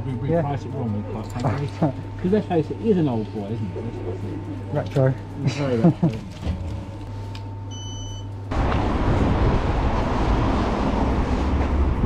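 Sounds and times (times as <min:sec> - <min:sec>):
low room hum: 0:00.0 - 0:12.0
rushing street noise: 0:08.5 - 0:12.0.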